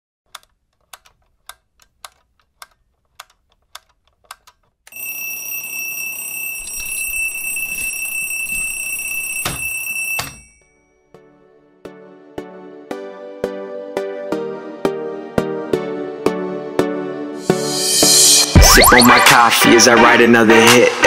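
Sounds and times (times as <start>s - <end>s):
clock ticking: 0.3s - 4.8s
alarm clock ringing: 4.9s - 10.8s.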